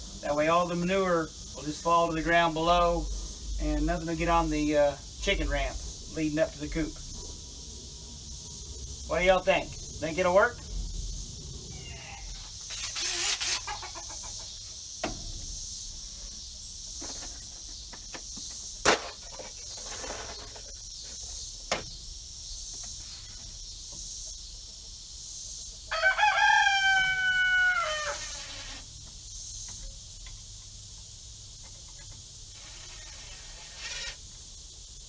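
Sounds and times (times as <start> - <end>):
high insect drone: 0.0 - 35.0
rooster crowing: 11.7 - 14.6, 25.9 - 28.6.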